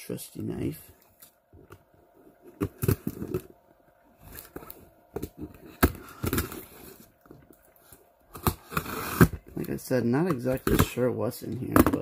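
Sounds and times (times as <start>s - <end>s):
knife cutting cardboard box: 8.3s - 9.5s.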